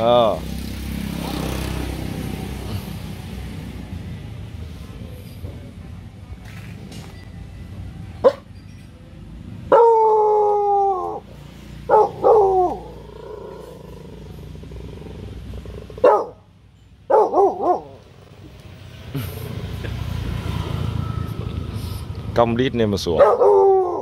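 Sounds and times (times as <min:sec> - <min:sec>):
puppy barking: 0:08.2 - 0:08.5, 0:09.7 - 0:13.8, 0:16.0 - 0:16.4, 0:17.1 - 0:18.1, 0:23.2 - 0:24.0
howling bark: 0:09.7 - 0:14.3, 0:15.9 - 0:16.4, 0:17.1 - 0:18.1, 0:23.2 - 0:24.0.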